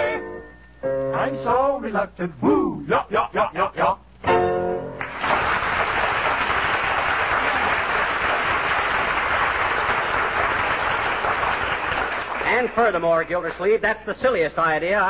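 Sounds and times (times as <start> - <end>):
audience applauding: 5.0 - 13.6.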